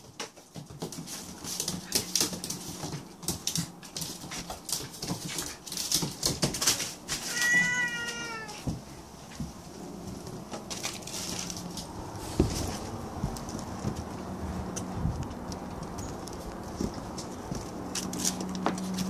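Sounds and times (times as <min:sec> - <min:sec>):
paws and claws on floor: 0:00.0 - 0:19.0
cat meowing: 0:07.2 - 0:08.7.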